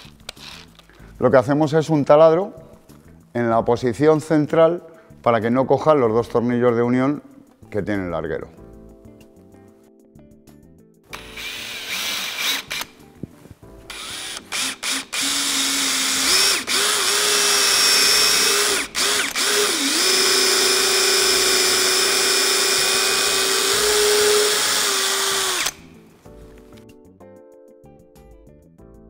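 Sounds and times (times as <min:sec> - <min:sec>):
cordless drill drilling wood: 0:11.2 - 0:12.9, 0:13.9 - 0:25.9.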